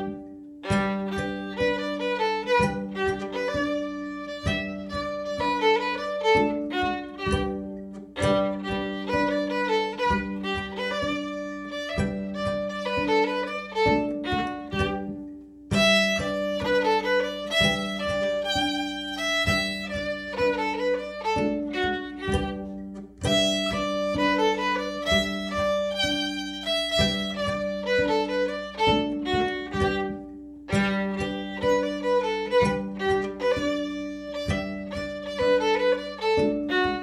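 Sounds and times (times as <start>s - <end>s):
lively fiddle tune: 0.0s - 37.0s.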